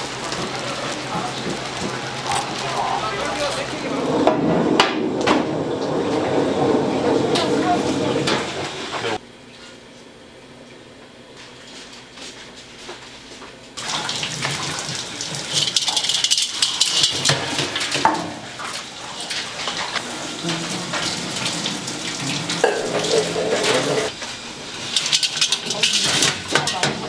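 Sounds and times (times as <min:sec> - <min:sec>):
tap water running into sink: 0:00.0 - 0:04.0, 0:13.8 - 0:24.1.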